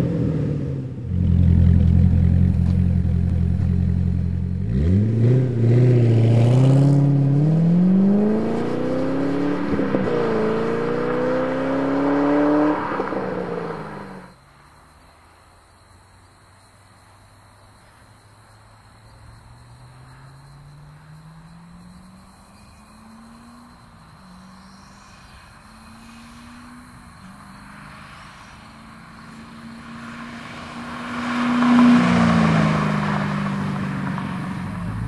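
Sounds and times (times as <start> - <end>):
sports car accelerating past: 0.0 - 14.3, 25.7 - 35.0.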